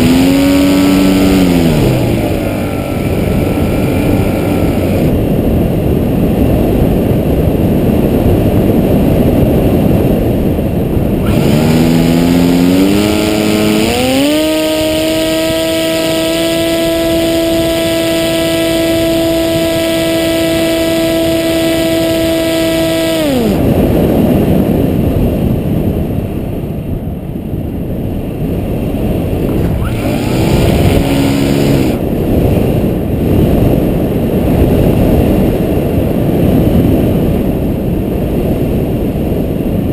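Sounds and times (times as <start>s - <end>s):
electric motor whine: 0.0s - 5.3s, 11.2s - 23.8s, 29.5s - 32.0s
wind rushing over microphone: 0.0s - 39.9s.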